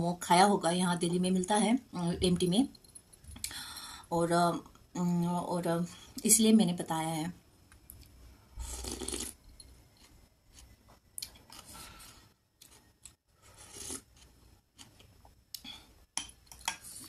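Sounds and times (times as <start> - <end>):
slurping soup from a spoon: 8.6 - 9.4, 13.4 - 14.3.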